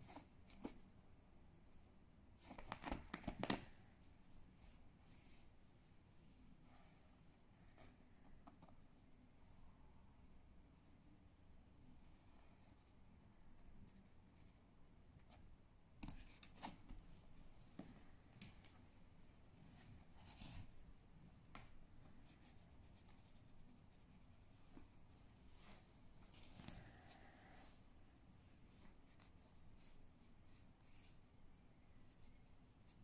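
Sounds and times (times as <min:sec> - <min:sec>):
kitten rustling under cloth: 0:19.4 - 0:27.6.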